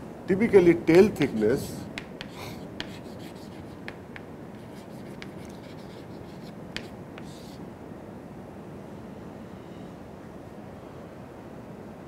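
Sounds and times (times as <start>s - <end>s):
low room hum: 0.0s - 12.0s
chalk tapping and scratching on chalkboard: 0.9s - 7.6s.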